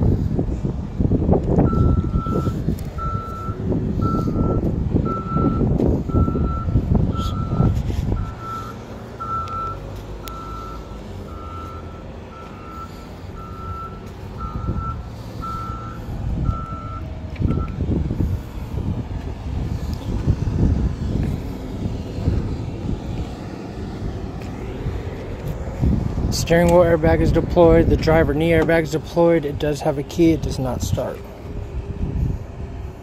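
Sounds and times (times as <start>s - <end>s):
heavy low rumbling: 0.0s - 33.0s
backup alarm beeping: 1.6s - 17.8s.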